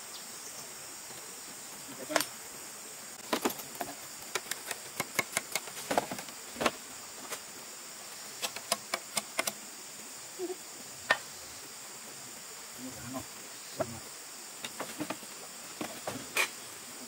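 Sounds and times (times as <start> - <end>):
high insect drone: 0.0 - 17.0
bamboo poles knocking and clacking: 3.2 - 6.8, 8.4 - 9.6.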